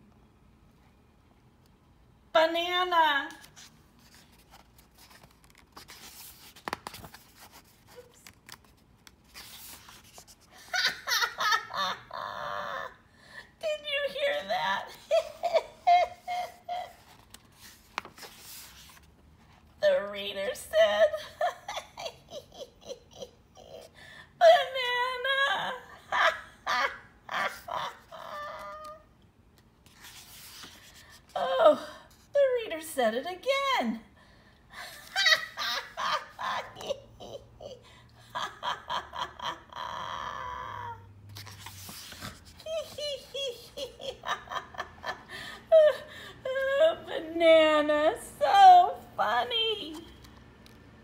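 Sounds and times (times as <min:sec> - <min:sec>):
book pages rustling: 0:03.3 - 0:10.7, 0:16.4 - 0:19.8, 0:28.6 - 0:31.4, 0:41.2 - 0:43.8, 0:49.9 - 0:51.0
woman laughing: 0:10.6 - 0:13.0, 0:14.2 - 0:17.0, 0:20.8 - 0:23.9, 0:25.6 - 0:29.0, 0:34.8 - 0:41.0, 0:42.6 - 0:47.4.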